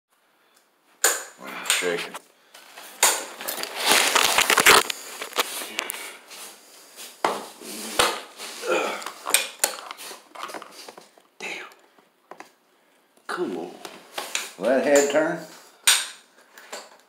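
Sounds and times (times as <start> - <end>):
rough scraping: 3.3 - 6.5
clattering of tools and concrete: 9.0 - 11.2, 14.2 - 17.0.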